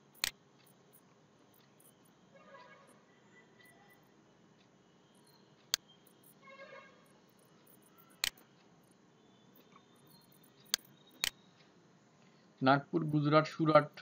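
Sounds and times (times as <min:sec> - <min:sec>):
computer mouse clicks: 0:00.0 - 0:01.0, 0:07.3 - 0:08.7, 0:09.6 - 0:11.7
faint room hiss: 0:00.0 - 0:14.0.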